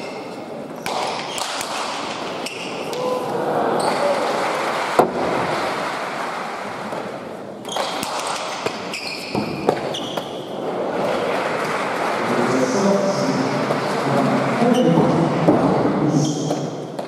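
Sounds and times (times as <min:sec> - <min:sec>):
shoes squeaking on court floor: 0:00.0 - 0:03.0, 0:03.8 - 0:04.2, 0:07.6 - 0:10.6
crowd noise: 0:00.0 - 0:17.0.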